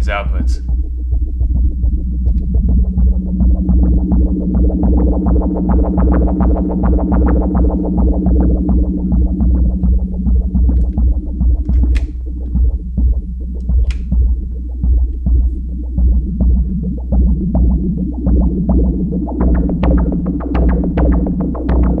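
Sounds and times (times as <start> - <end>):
low synthesizer drone: 0.0 - 22.0
rapid plucked synthesizer notes: 0.0 - 22.0.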